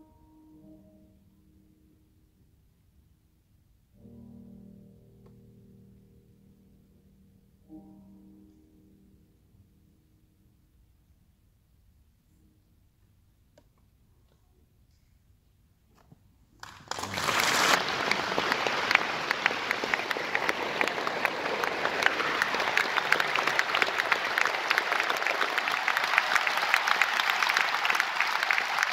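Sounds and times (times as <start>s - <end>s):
audience applause: 16.6s - 28.9s.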